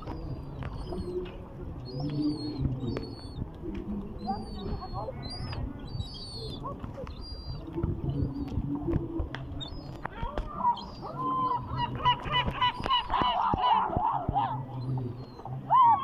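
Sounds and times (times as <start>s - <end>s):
gulls honking calls: 10.0s - 16.0s.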